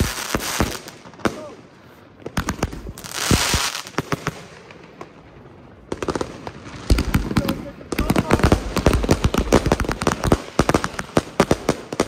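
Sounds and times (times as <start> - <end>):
firework bangs: 0.0 - 1.6, 2.2 - 5.2, 5.8 - 12.0
firework crackling: 0.0 - 12.0.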